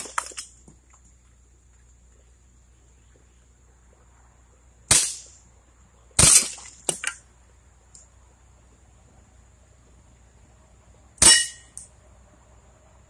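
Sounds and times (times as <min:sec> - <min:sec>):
air pistol shots: 0:04.9 - 0:05.4, 0:06.2 - 0:06.6
glass bottle shattering: 0:06.2 - 0:07.2.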